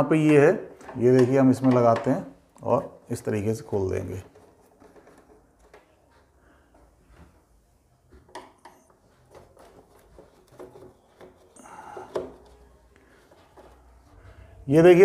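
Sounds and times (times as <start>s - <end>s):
plastic scraping rustle: 3.7s - 6.2s, 9.1s - 14.5s.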